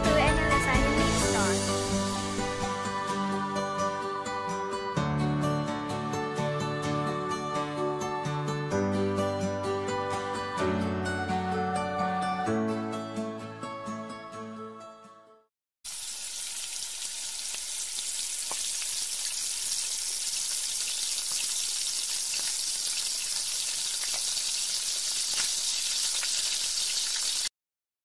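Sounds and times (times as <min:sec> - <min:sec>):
onions sizzling in hot oil: 0:15.9 - 0:27.5.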